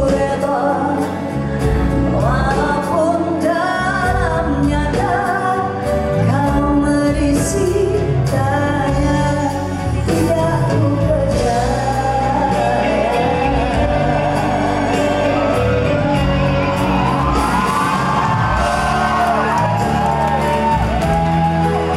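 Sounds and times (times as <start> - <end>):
woman singing live: 0.0 - 16.4
live band playing: 0.0 - 21.9.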